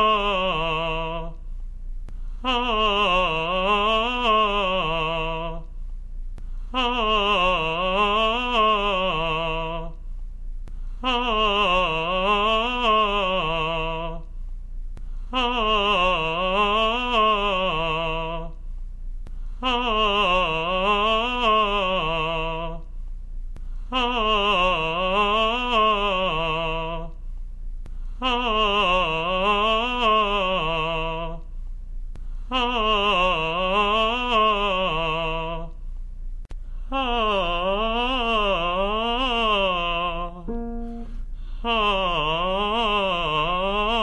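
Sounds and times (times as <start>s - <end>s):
person singing vocal warm-up: 0.0s - 1.4s, 2.1s - 5.8s, 6.6s - 10.0s, 10.8s - 14.3s, 15.3s - 18.6s, 19.6s - 22.8s, 23.9s - 27.1s, 28.2s - 31.4s, 36.9s - 44.0s
person breathing: 2.1s - 2.5s, 10.7s - 11.0s, 15.0s - 15.4s, 23.6s - 24.0s, 27.9s - 28.2s, 36.6s - 37.0s, 41.1s - 41.7s.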